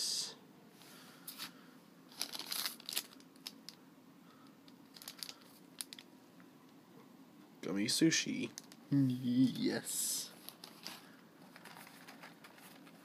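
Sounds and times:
packaging crinkling: 2.1s - 3.8s, 4.6s - 6.1s, 10.3s - 13.0s.

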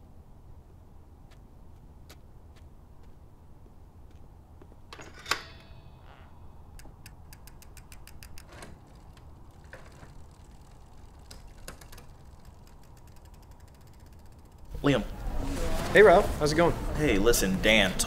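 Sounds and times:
bicycle freewheel ticking: 6.8s - 14.8s.

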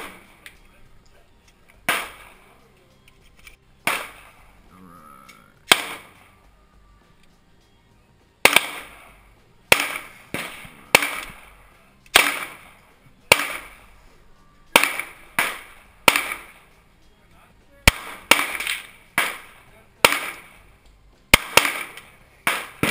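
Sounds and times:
gunshots with echo: 1.9s - 2.4s, 3.8s - 4.6s, 5.7s - 6.3s, 8.5s - 9.1s, 9.7s - 13.8s, 14.7s - 16.6s, 17.9s - 20.6s, 21.4s - 22.9s.

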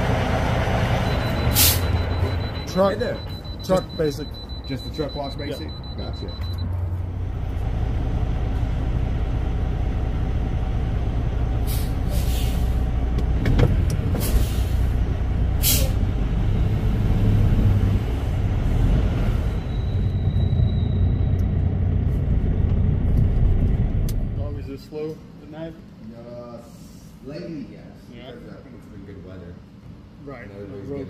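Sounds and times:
truck diesel engine running: 0.0s - 24.4s
short air hisses: 1.5s - 1.8s, 11.6s - 12.8s, 14.2s - 14.9s, 15.6s - 16.0s.

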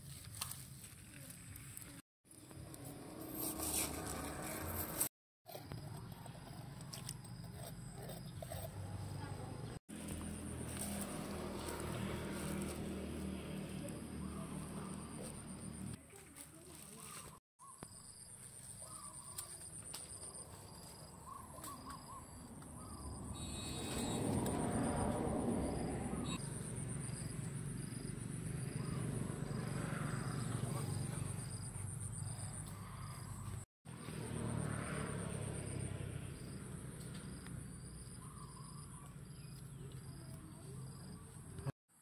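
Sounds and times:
insects chirping: 17.6s - 33.3s
insects chirping trill: 22.8s - 25.0s.

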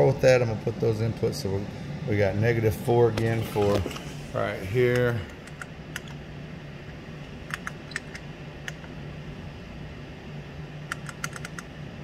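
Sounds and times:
steady low hum: 0.0s - 12.0s
printer keys clicking: 10.9s - 11.6s.

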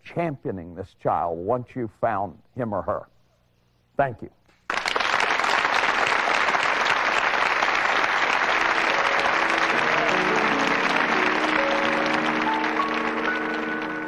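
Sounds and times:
audience applauding: 4.7s - 14.0s
music with held notes: 8.5s - 14.0s.

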